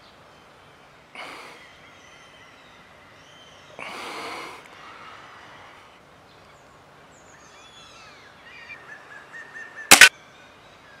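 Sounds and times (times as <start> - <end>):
birds singing faintly: 0.0 - 11.0.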